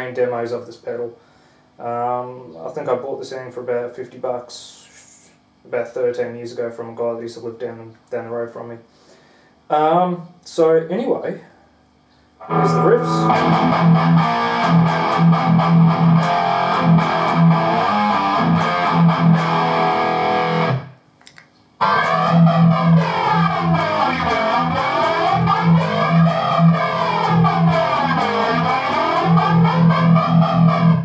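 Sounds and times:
distorted electric guitar metal riff: 12.4s - 21.0s, 21.8s - 31.0s.

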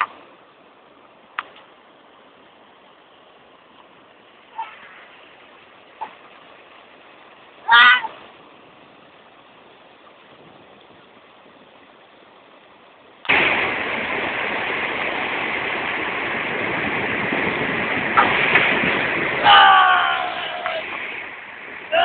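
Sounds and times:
faint steady hiss: 0.0s - 22.0s
rush of flowing water: 0.0s - 22.0s.

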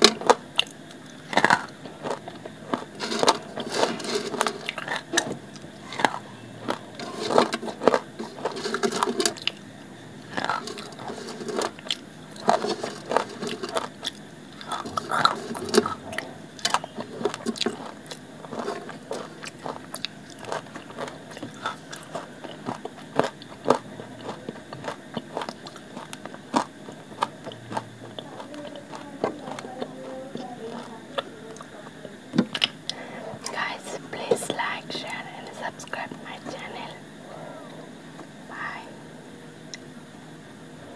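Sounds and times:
crunching dried clay with teeth: 0.0s - 9.6s, 10.2s - 31.7s.

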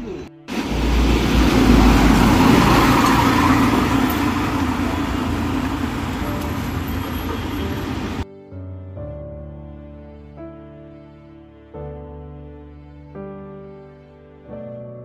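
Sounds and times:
vehicles passing on street: 0.1s - 8.2s.

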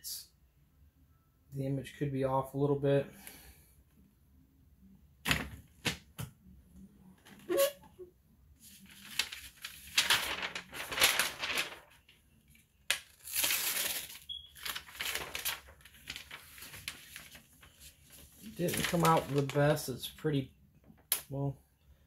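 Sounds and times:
paper rustling and crinkling: 8.6s - 19.9s.

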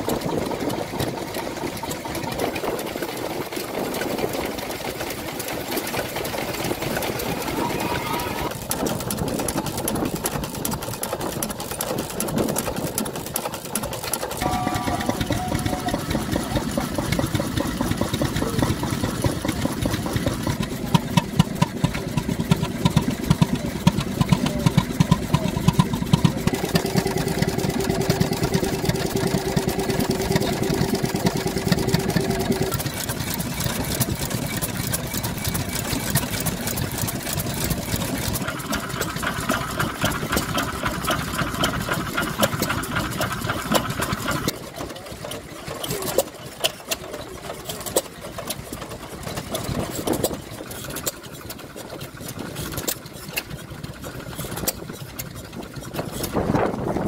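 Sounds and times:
stationary engines clattering: 0.0s - 57.0s
higher steady tone: 7.2s - 8.5s, 14.4s - 17.4s
steady tone: 14.4s - 17.4s.

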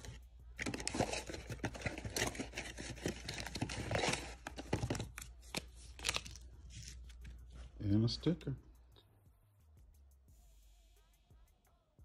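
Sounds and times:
plastic packaging crinkling: 0.0s - 7.3s.

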